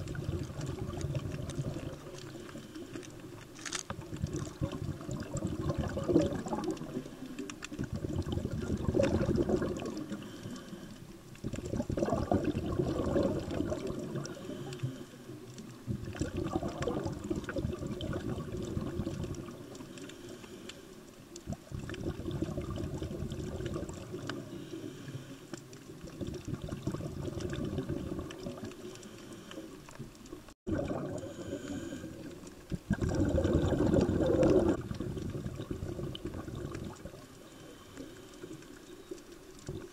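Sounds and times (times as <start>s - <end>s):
rumbling exhaled bubbles: 0.0s - 20.1s, 21.3s - 25.0s, 25.6s - 39.9s
diver breathing through regulator: 9.4s - 11.1s, 13.7s - 15.4s, 19.8s - 21.0s, 24.3s - 25.6s, 28.7s - 29.9s, 31.1s - 32.5s, 37.3s - 38.8s.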